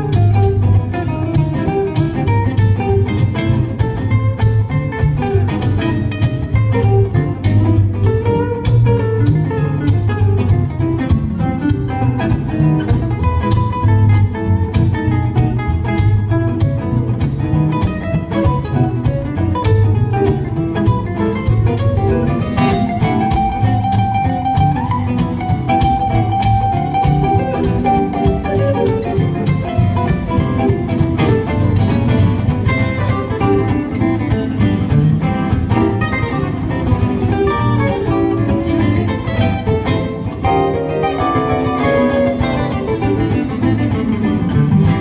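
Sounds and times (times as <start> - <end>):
acoustic guitars playing fast tune: 0.0 - 45.0
guitar lead long high note: 35.8 - 45.0.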